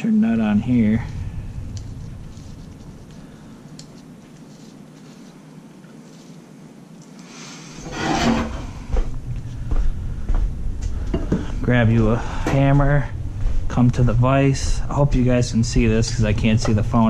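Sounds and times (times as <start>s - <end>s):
rustling: 0.5s - 9.7s.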